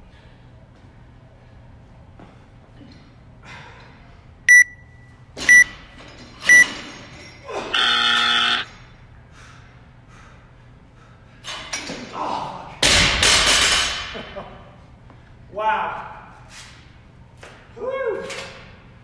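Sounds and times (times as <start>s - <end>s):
short high beeps: 4.5s - 5.6s
low buzzer: 7.7s - 8.7s.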